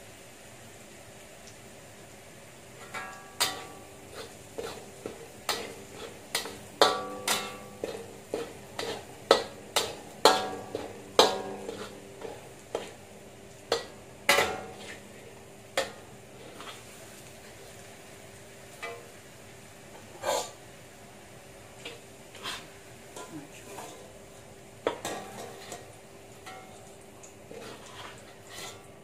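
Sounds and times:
metal spatula clanking in wok: 0:02.8 - 0:13.0, 0:13.7 - 0:15.0, 0:15.7 - 0:16.8, 0:18.8 - 0:19.2, 0:24.8 - 0:26.8.

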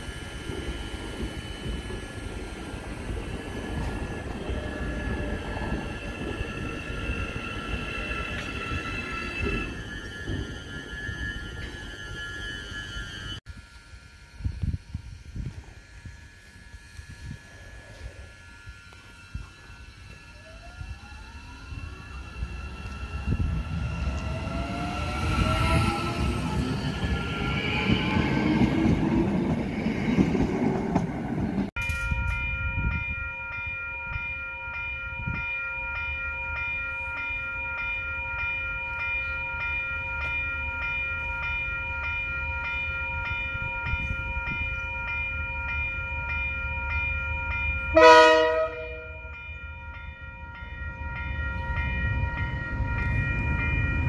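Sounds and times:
electric train motors whining: 0:00.0 - 0:32.4
level crossing alarm ringing: 0:31.8 - 0:54.0
locomotive horn blast: 0:47.9 - 0:49.3.

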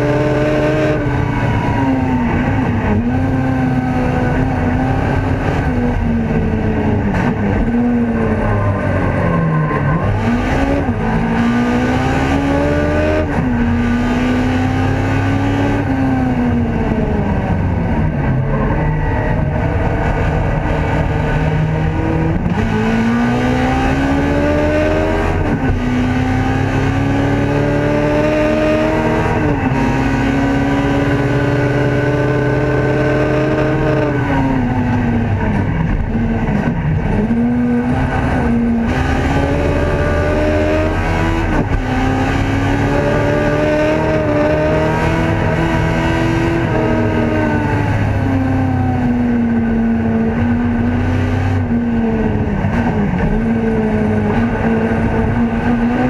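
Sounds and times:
race car engine accelerating: 0:00.0 - 0:56.0.

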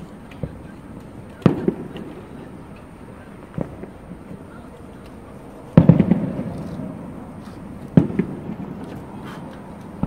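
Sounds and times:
small firework cracks: 0:00.0 - 0:10.0
firework shells booming: 0:01.3 - 0:02.6, 0:05.7 - 0:10.0.

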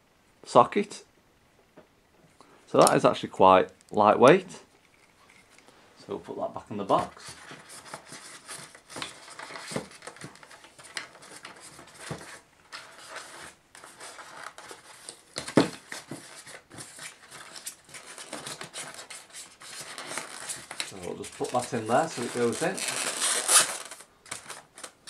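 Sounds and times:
scrapes and rustles on foam: 0:06.2 - 0:24.1.

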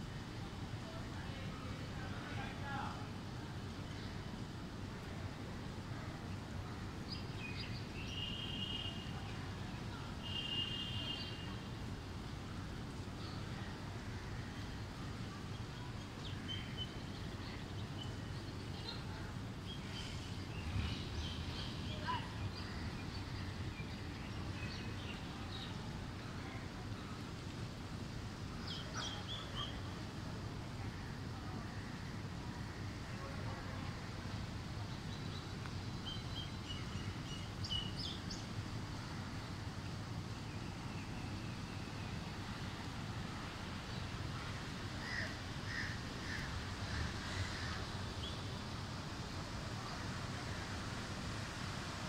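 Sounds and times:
wind: 0:00.0 - 0:52.0
heavy rain: 0:42.2 - 0:52.0.

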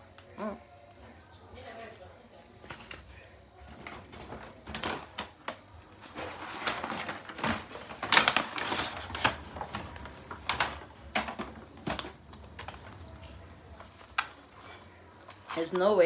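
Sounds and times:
crinkling and rustling wrapper: 0:02.6 - 0:16.0.

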